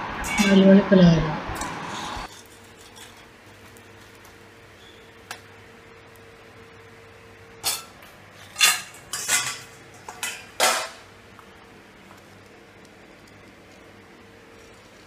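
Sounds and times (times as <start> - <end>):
metal utensils and pans clattering: 2.2 - 3.4, 7.6 - 11.1.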